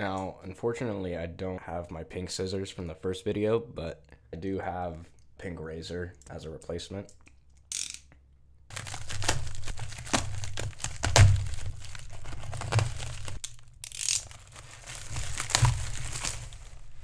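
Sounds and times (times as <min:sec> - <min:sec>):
package thuds: 0:08.7 - 0:13.6, 0:14.2 - 0:16.8
knife slitting plastic mailer: 0:08.7 - 0:16.8
plastic crinkling and rustling: 0:08.7 - 0:17.0.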